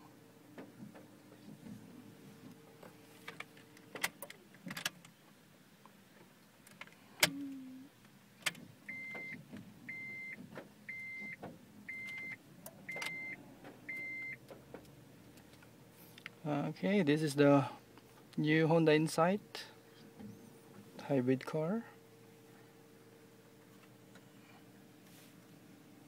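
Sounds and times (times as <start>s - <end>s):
dashboard warning chime beeping: 8.9s - 14.4s.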